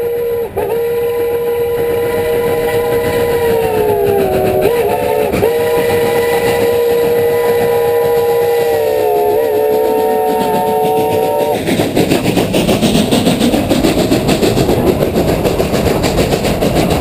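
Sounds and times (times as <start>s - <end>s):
train whistle chord blast: 0.0s - 11.6s.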